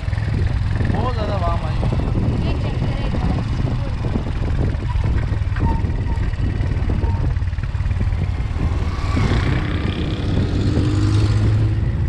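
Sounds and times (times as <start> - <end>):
motorcycle engine running: 0.0 - 12.0
wind rumble on microphone: 0.0 - 12.0
small car passing: 8.4 - 12.0.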